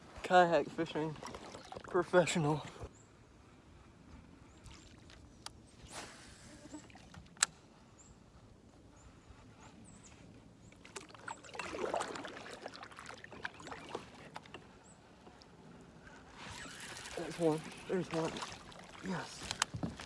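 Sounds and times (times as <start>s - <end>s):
water lapping against hull: 0.7s - 2.9s, 9.8s - 20.0s
paddle strokes splashing: 0.9s - 2.1s, 10.7s - 20.0s.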